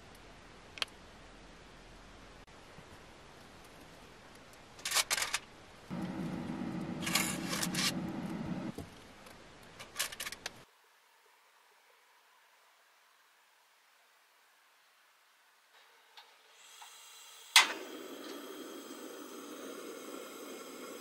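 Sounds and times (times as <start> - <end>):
low steady hum: 5.6 - 9.6.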